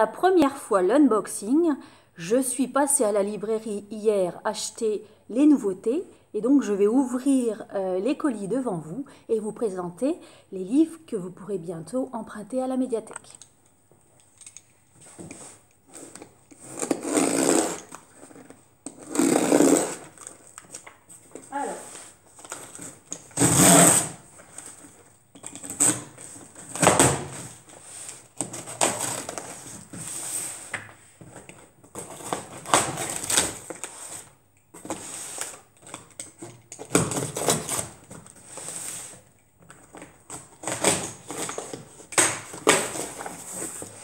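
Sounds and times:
cardboard and paper rustling: 0:19.9 - 0:23.4, 0:24.2 - 0:44.0.

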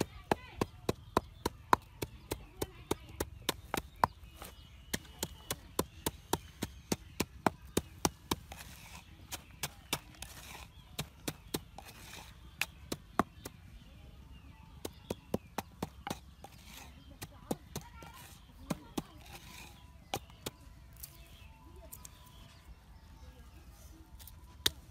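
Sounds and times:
pestle pounding in a mortar: 0:00.0 - 0:13.6, 0:14.8 - 0:20.6.

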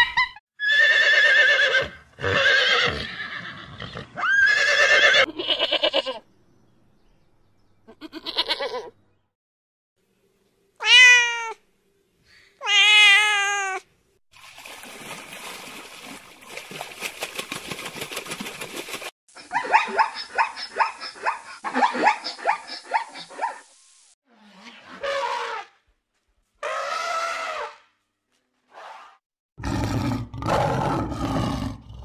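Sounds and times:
sheep bleating: 0:07.9 - 0:08.9.

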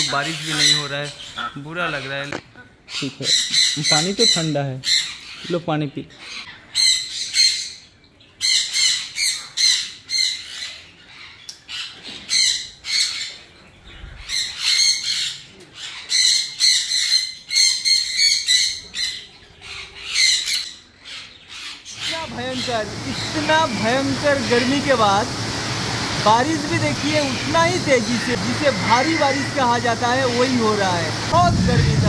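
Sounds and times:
parrots squawking: 0:00.0 - 0:07.8, 0:14.2 - 0:31.8.

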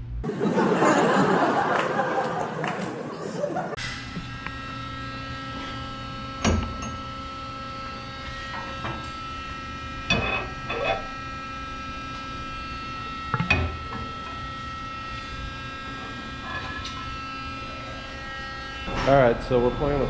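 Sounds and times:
electrical hum: 0:00.0 - 0:20.0
metallic clanks: 0:10.1 - 0:11.1.

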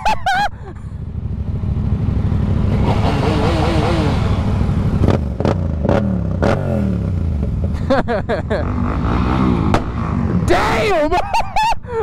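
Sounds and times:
motorcycle engine running: 0:00.5 - 0:10.8.

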